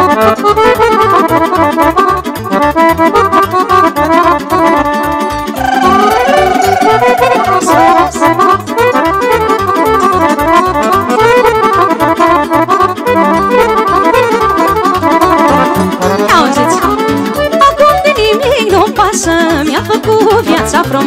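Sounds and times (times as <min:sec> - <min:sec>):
fast lead melody: 0:05.4 - 0:18.1
driving bass beat: 0:05.5 - 0:18.6.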